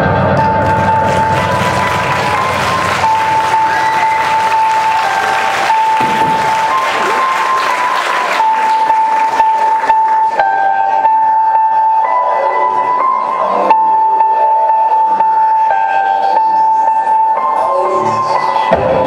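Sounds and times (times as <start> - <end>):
backing music: 0.0 - 19.0
audience applauding: 0.4 - 10.4.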